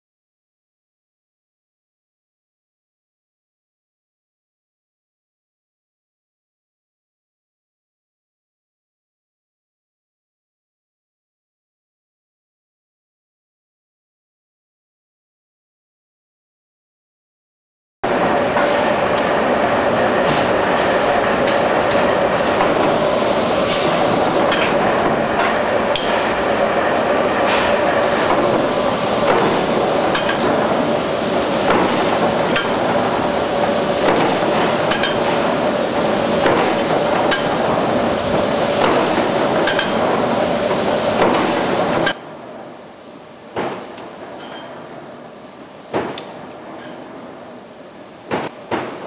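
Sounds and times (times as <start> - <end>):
forge machinery din: 18.0 - 42.2.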